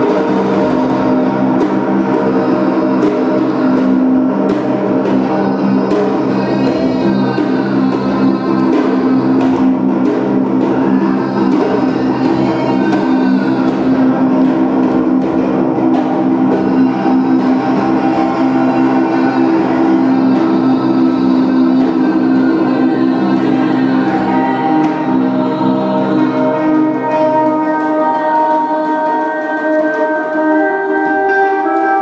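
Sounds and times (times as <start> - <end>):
electric guitar drone: 10.6 - 32.0.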